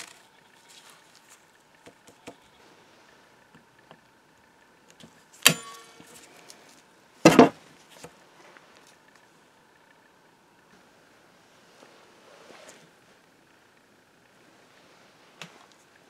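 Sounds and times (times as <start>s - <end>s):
sharp metal clanks: 5.4s - 6.2s.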